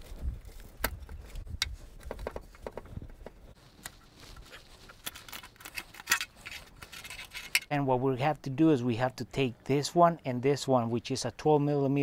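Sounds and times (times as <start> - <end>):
screwdriver clicking and scraping metal: 4.3 - 7.7.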